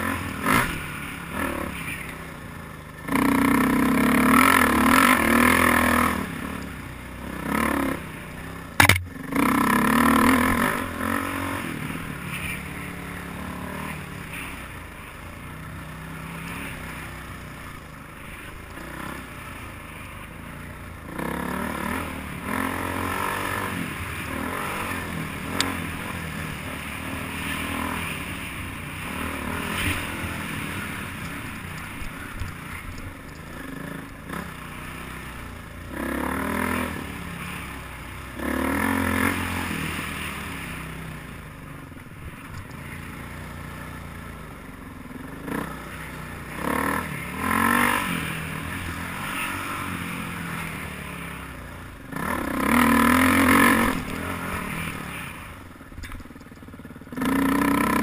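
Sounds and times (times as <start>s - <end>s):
dirt bike engine revving: 0.0s - 2.2s, 2.9s - 58.0s
sharp click: 8.8s - 9.2s.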